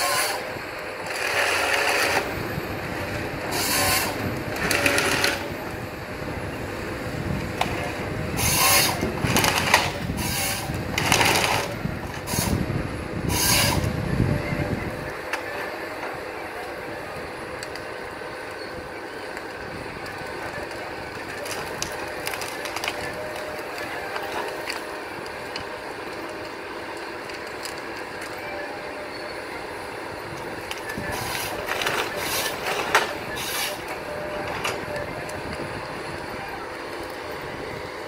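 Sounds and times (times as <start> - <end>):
forestry harvester running: 0.0 - 38.0
sharp cracks and knocks of wood: 8.6 - 12.5, 20.4 - 28.4, 30.6 - 33.9.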